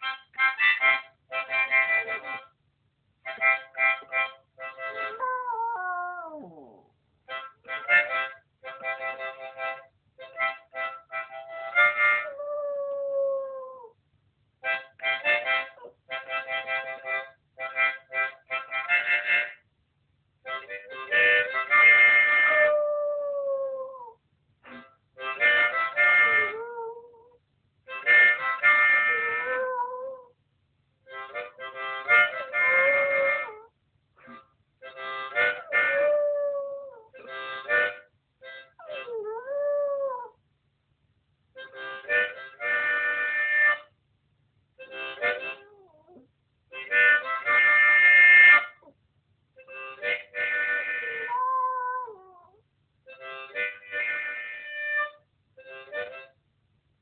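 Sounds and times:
harmonica chords: 0.0 - 2.6, 3.2 - 5.4, 7.2 - 12.4, 14.6 - 19.6, 20.5 - 22.8, 24.6 - 26.8, 27.9 - 30.0, 31.1 - 36.5, 37.2 - 39.9, 41.6 - 43.9, 44.8 - 46.0, 46.7 - 48.9, 49.6 - 51.4, 53.1 - 56.4
dog howling: 5.0 - 6.9, 12.2 - 14.0, 22.4 - 24.2, 26.2 - 27.4, 29.1 - 30.4, 35.6 - 37.3, 38.8 - 40.4, 45.6 - 46.2, 51.0 - 52.6.

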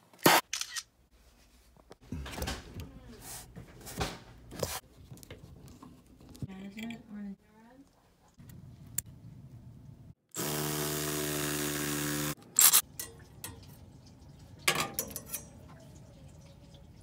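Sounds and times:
power tool motor running: 10.3 - 12.8.

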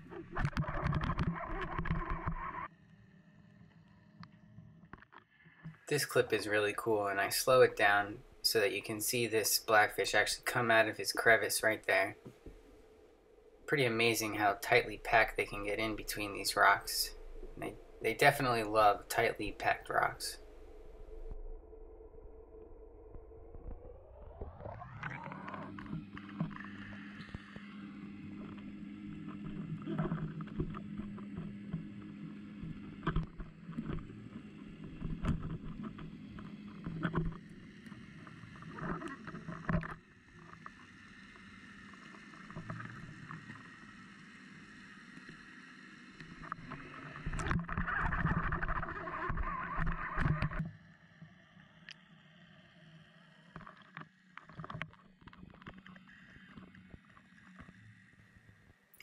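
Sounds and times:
muffled underwater water noise: 0.0 - 59.0
steady low hum: 2.7 - 49.6.

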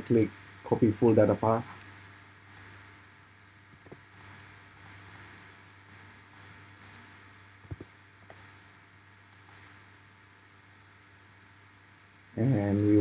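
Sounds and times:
low steady hum: 0.0 - 13.0
keyboard and mouse clicks: 2.4 - 2.7, 3.7 - 5.3, 5.9 - 8.4, 9.3 - 9.7.

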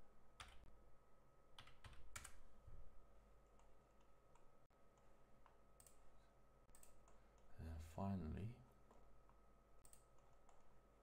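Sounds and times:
computer keyboard and mouse clicks: 1.6 - 2.4, 6.7 - 7.5, 8.8 - 10.7.

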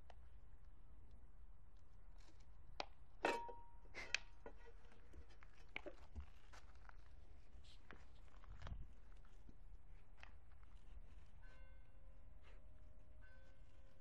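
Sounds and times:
puppy paws scuffling on stone: 4.8 - 11.4.

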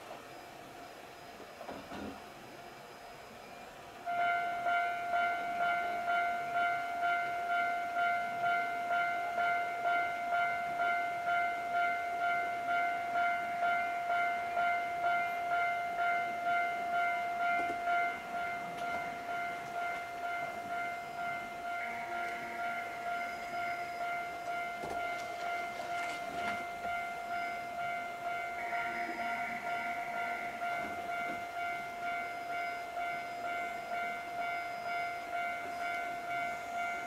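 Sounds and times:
level crossing alarm bell: 4.1 - 37.0.

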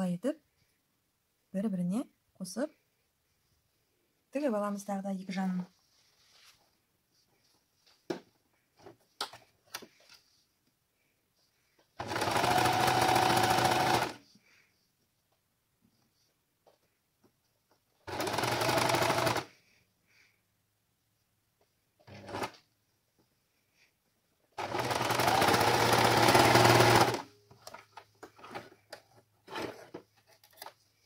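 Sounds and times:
sewing machine stitching: 12.0 - 14.2, 18.0 - 19.5, 22.0 - 22.6, 24.6 - 27.3, 29.4 - 30.0.

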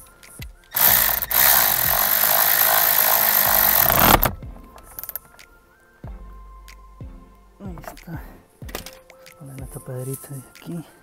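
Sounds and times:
cordless power tool driving bolt: 0.8 - 4.4.

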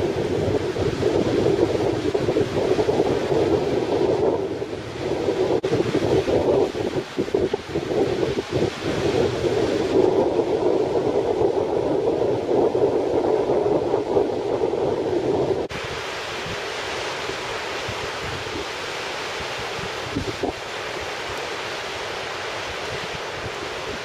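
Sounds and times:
breaking surf: 0.0 - 24.0
wind buffeting the microphone: 0.0 - 24.0.

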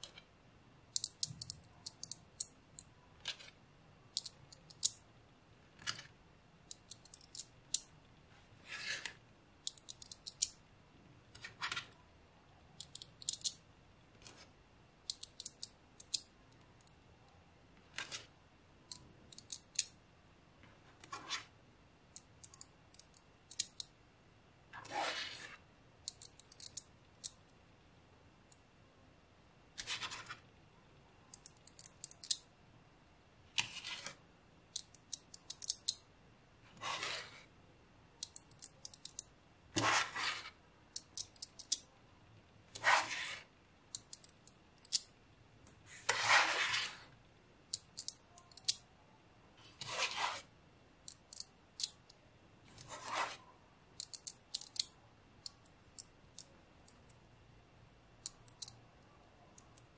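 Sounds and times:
magnetic balls clicking together: 34.7 - 36.0.

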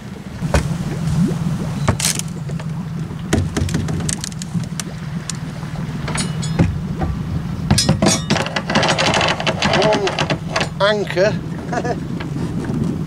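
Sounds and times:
boat engine idling: 0.0 - 13.0
anchor chain clanks and rattles: 1.9 - 2.4, 3.4 - 5.4, 6.0 - 13.0.

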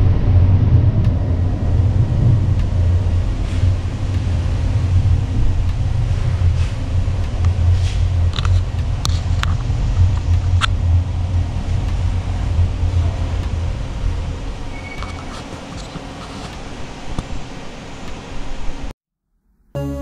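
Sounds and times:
funicular car humming: 0.0 - 18.9.

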